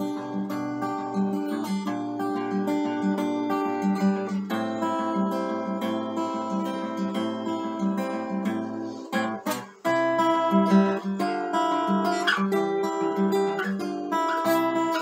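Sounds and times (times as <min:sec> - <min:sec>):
acoustic guitar chords: 0:00.0 - 0:15.0.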